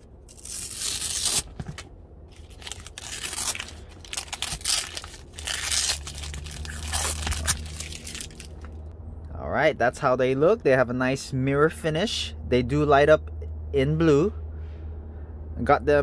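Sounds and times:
plastic film peeling off: 0.3 - 8.8.

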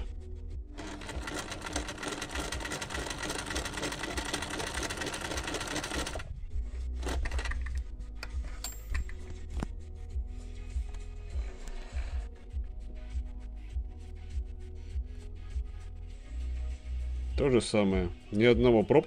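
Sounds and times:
sewing machine stitching: 0.8 - 6.3, 7.0 - 7.6.

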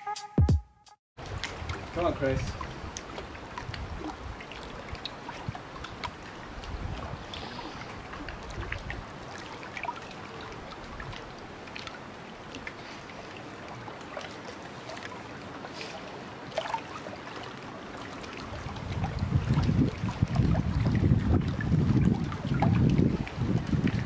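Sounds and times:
faint outdoor background noise: 1.2 - 18.6.

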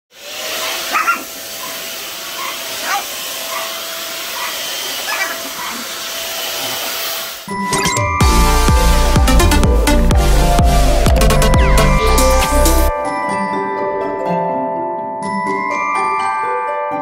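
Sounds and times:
vacuum cleaner whining: 0.1 - 7.6
small dog yapping: 0.6 - 1.8, 2.4 - 6.0.

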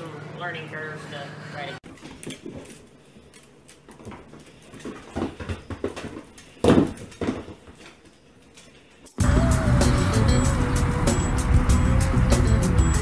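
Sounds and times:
hooves and paws on hardwood floor: 1.9 - 9.0.

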